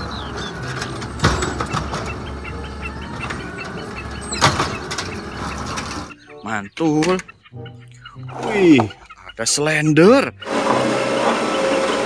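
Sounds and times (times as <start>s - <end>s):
cart banging against truck: 0.0s - 6.2s
garbage truck running: 0.0s - 6.2s, 10.1s - 12.0s.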